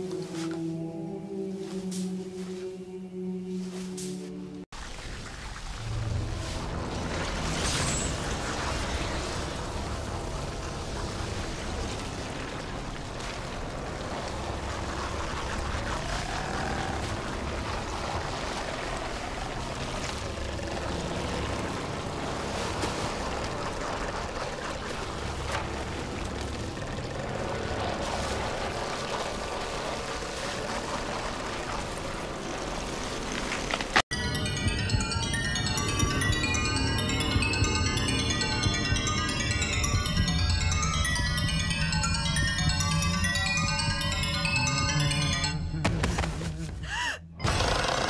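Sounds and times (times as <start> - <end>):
low rumbling drone: 5.7 - 33.3.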